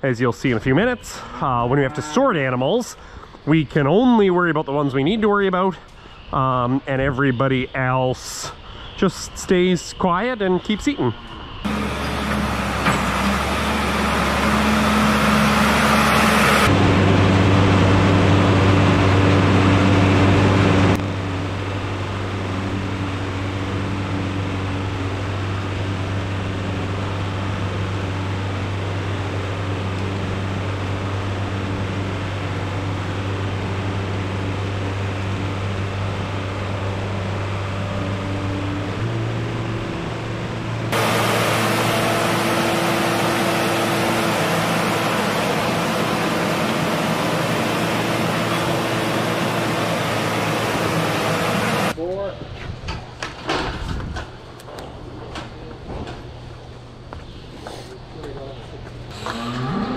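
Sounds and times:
feed mixer wagon humming: 11.2 - 52.0, 59.1 - 59.9.

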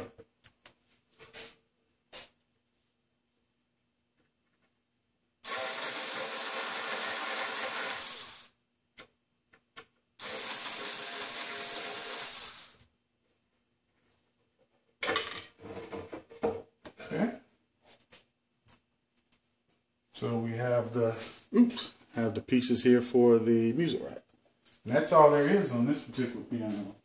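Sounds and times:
power screwdriver running: 5.4 - 8.5, 10.2 - 12.8.

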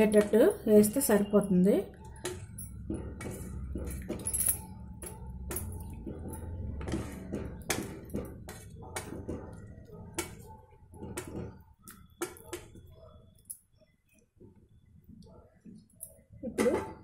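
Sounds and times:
spoon scraping a steel pan: 5.5 - 12.8.

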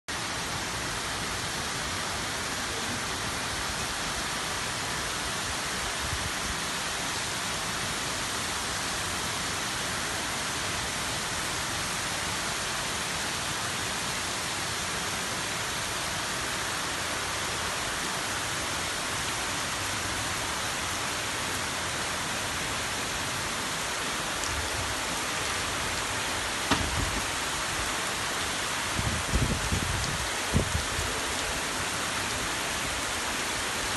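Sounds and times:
heavy rain pouring: 0.1 - 33.9.

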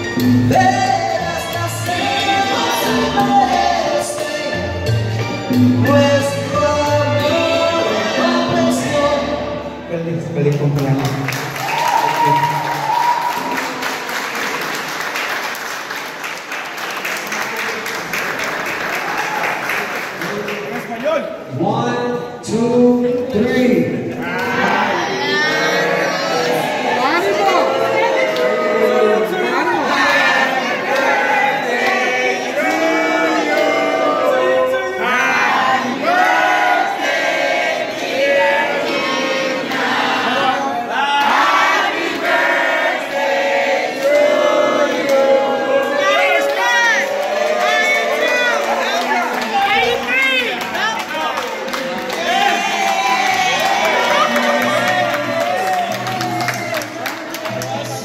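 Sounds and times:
group singing birthday song: 0.0 - 9.6, 23.3 - 49.3
people applauding: 10.5 - 21.3, 45.8 - 58.0.

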